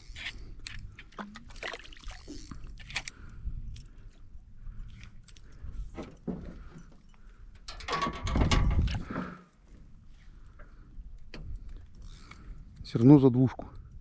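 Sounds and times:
metallic clicks and jingles: 4.8 - 9.1.

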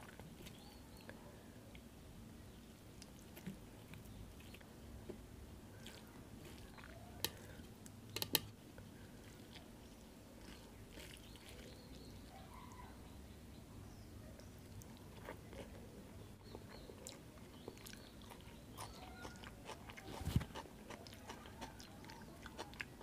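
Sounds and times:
fingers squishing rice: 2.9 - 13.0.

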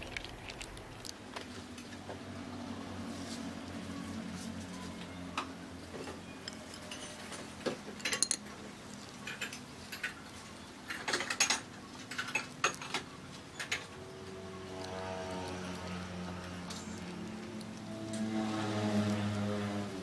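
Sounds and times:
rice paper crackling: 0.0 - 1.6.

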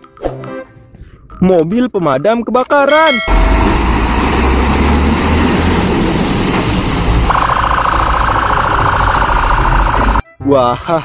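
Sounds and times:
fire engine rumbling: 3.1 - 10.2
buzzing warning tone: 7.2 - 10.2.

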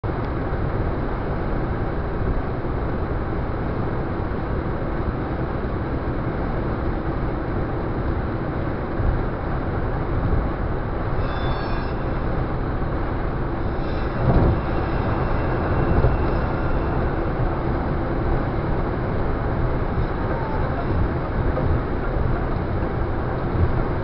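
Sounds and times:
car road noise at speed: 0.0 - 24.0.

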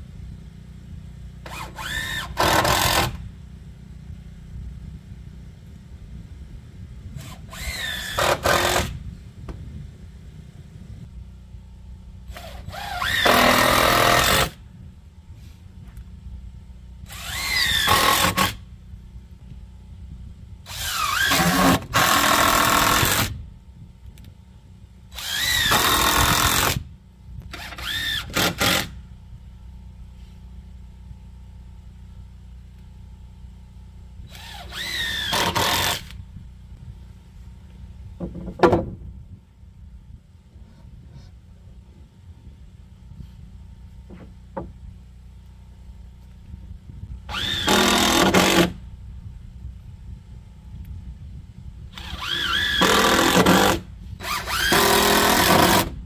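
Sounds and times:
cordless drill driving screws: 1.4 - 3.2, 7.2 - 9.0, 12.3 - 14.6, 17.1 - 18.6, 20.7 - 23.4, 25.1 - 26.8, 27.5 - 29.0, 34.3 - 36.2, 47.3 - 48.8, 51.9 - 56.0.

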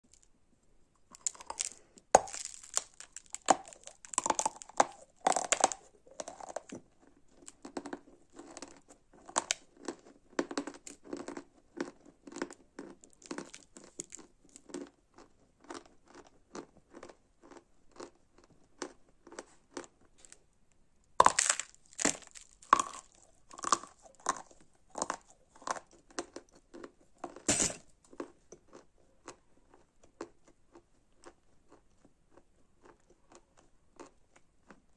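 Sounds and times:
crunchy chewing: 1.0 - 20.4, 21.2 - 34.9
chalk crunching when bitten: 1.1 - 6.8, 21.2 - 27.8.

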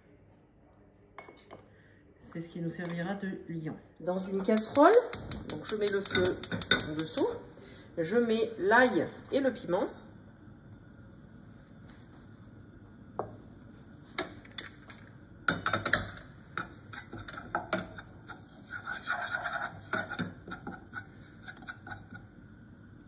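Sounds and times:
spatula scraping a saucepan: 16.6 - 22.3.

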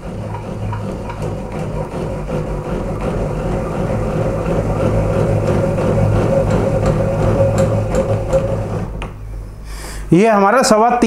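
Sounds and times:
table saw crank mechanical hum: 0.0 - 9.6.

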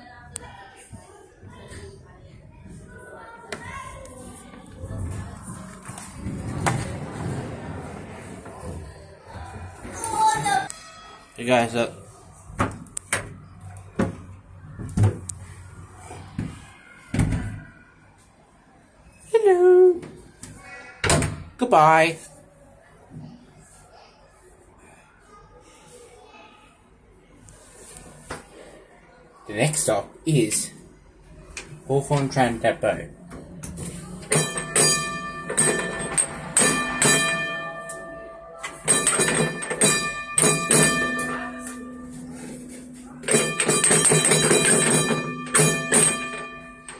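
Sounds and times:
tram door knocking and banging: 34.2 - 37.8, 38.8 - 41.6, 43.2 - 46.6.

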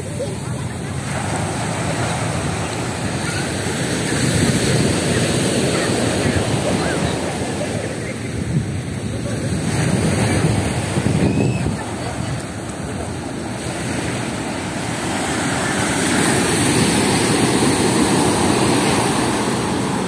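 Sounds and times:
ocean waves breaking: 0.0 - 20.0
wind on microphone: 0.0 - 20.0.

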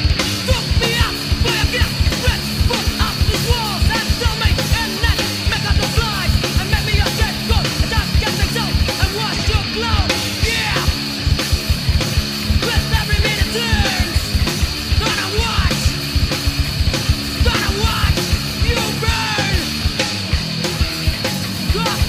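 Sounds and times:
punk rock song: 0.0 - 22.0.

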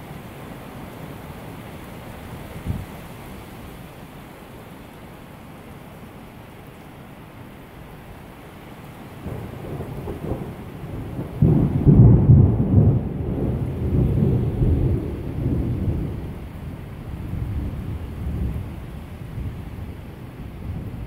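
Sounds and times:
heavy rain: 0.0 - 21.0
thunder rumbling: 9.2 - 18.8.

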